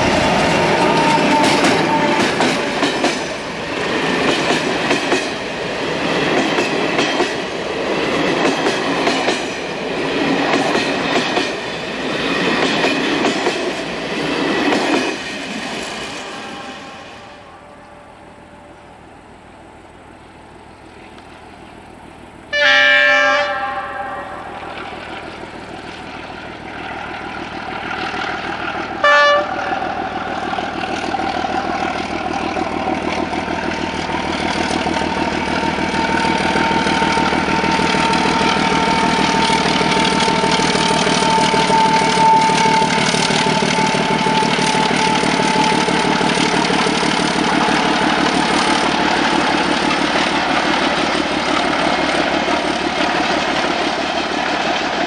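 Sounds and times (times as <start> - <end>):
locomotive horn: 0.0 - 3.0, 16.2 - 18.8, 22.5 - 25.0, 29.0 - 30.4, 36.5 - 46.8
diesel locomotive engines: 0.0 - 55.0.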